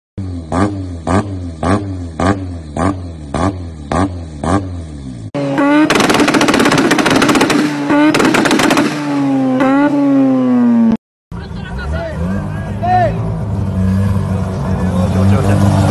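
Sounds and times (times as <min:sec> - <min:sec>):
rotary engine revving: 0:00.2 - 0:11.0, 0:11.6 - 0:15.9
engine on launch limiter: 0:05.3 - 0:11.0
exhaust popping and crackling: 0:05.6 - 0:09.7.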